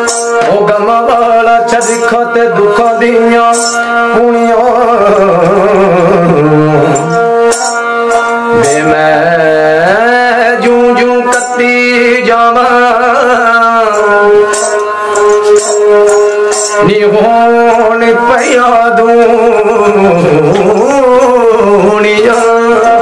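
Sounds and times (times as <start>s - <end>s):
fiddle with bells playing melody: 0.0s - 23.0s
man singing: 0.0s - 23.0s.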